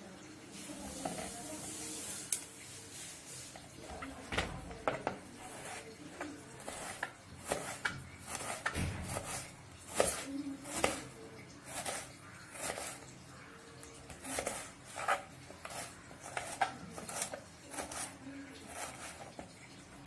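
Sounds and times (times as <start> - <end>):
onion rustling: 0.5 - 13.1, 14.1 - 19.6
knife chopping on wooden board: 6.6 - 11.0.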